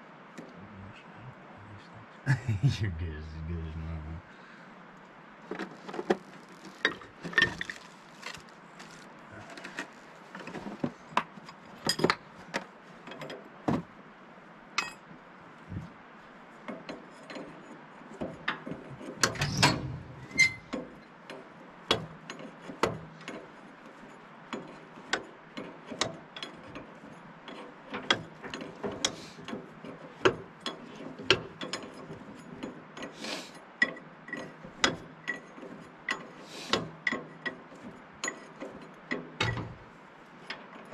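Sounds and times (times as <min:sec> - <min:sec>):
metal tools clinking against steel: 0:14.8 - 0:15.1, 0:19.2 - 0:21.0, 0:30.6 - 0:39.8.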